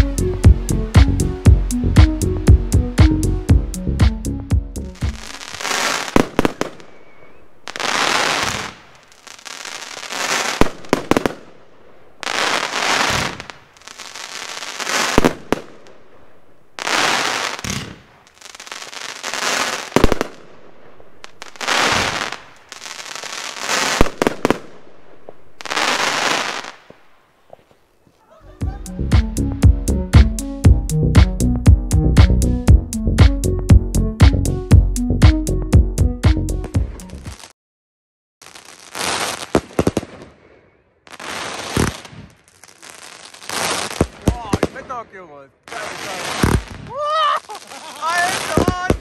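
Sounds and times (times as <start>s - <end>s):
firework crackling: 5.0s - 27.3s, 37.2s - 37.6s, 38.4s - 49.0s
firework launches: 5.1s - 16.0s, 16.8s - 27.1s, 41.1s - 45.0s, 45.7s - 49.0s.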